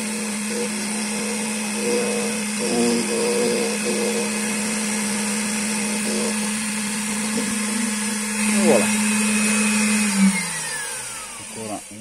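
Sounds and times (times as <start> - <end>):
motor hum: 0.0 - 12.0.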